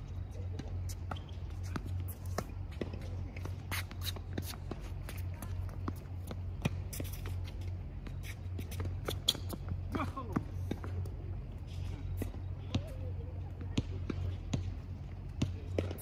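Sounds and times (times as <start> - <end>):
steady low hum: 0.0 - 16.0
shoe scuffs on court: 0.8 - 6.0.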